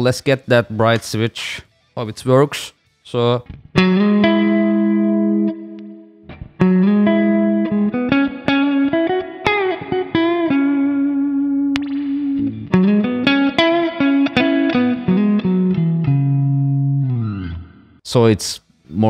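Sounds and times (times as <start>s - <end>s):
clean electric guitar playing: 3.3s - 18.0s.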